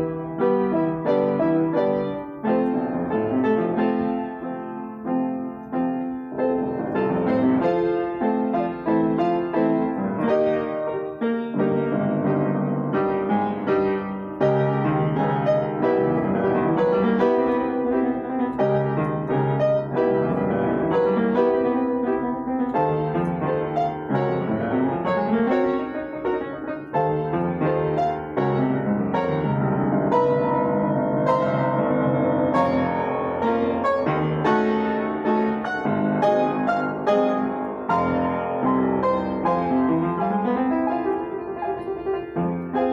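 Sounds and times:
solo piano: 0:00.0 - 0:42.9.

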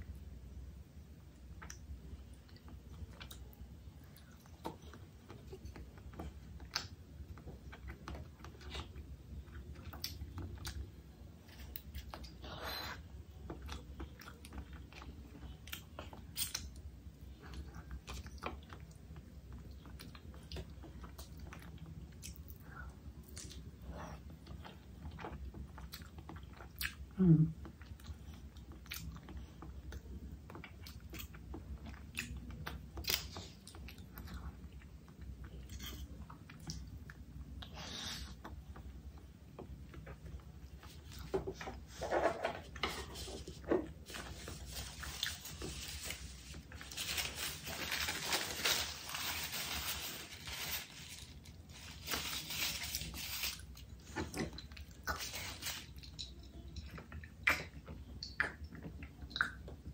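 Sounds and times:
person chewing: 0:23.2 - 0:42.2, 0:42.8 - 0:59.8.

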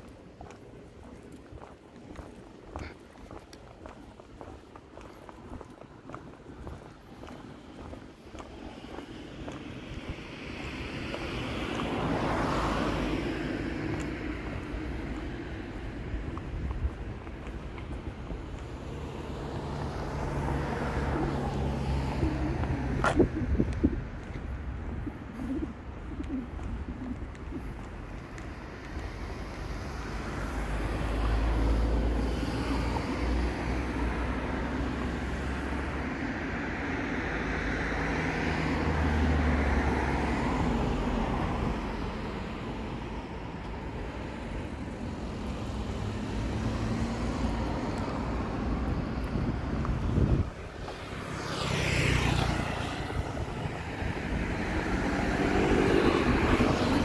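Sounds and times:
low traffic rumble: 0:00.0 - 0:57.0
vehicles passing: 0:00.0 - 0:57.0
loud vehicle passing close: 0:50.0 - 0:57.0.

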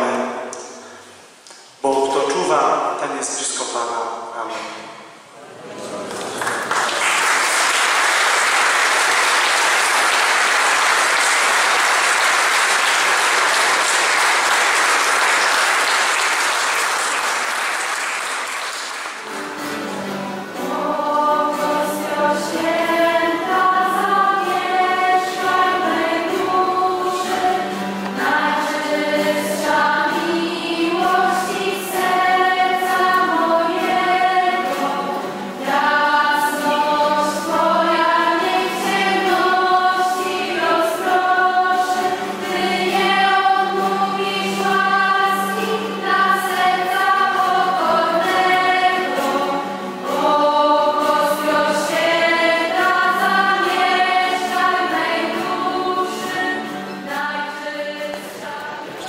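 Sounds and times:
group singing a hymn: 0:04.5 - 0:59.0
applause: 0:06.0 - 0:19.6.

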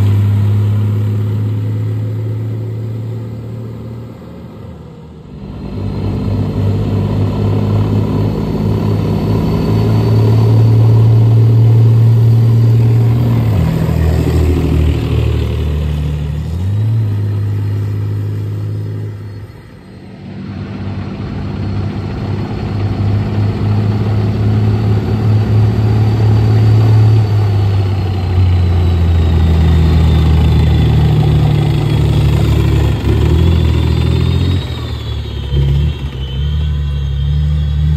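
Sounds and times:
high whine: 0:00.0 - 0:21.3
tracked vehicle diesel engines: 0:00.0 - 0:37.9.

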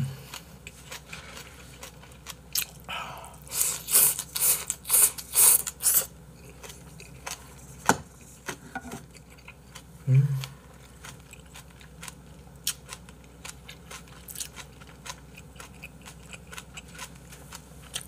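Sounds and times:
slurping and chewing: 0:00.2 - 0:18.0.

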